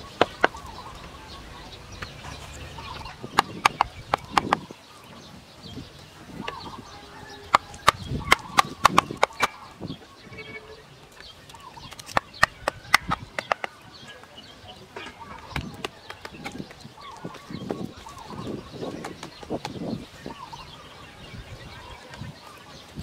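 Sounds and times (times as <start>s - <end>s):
faint birds calling: 0.0s - 23.0s
bamboo pieces knocking into soil: 7.5s - 9.6s.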